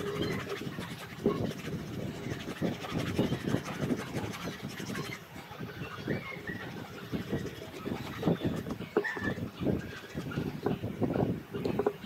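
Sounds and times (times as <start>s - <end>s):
eraser scrubbing leather: 0.0s - 5.2s.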